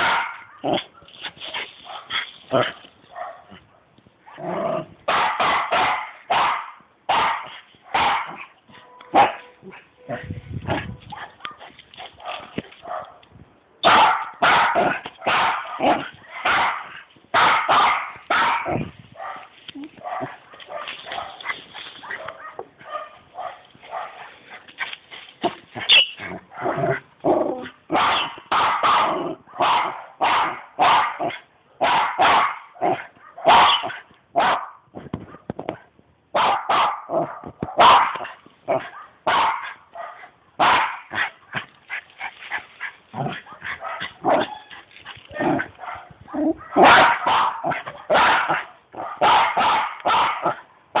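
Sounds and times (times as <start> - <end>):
dog barking sharply: 0.0 - 0.9, 5.1 - 8.5, 9.1 - 9.9, 13.8 - 24.2, 27.9 - 35.4, 36.4 - 41.4, 43.4 - 44.7, 45.8 - 51.0.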